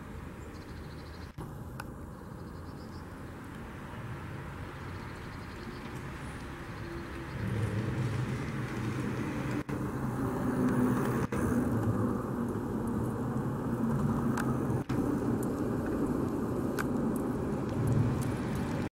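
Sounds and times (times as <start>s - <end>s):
road traffic: 0.0s - 18.9s
vehicle engine rumble: 0.0s - 18.9s.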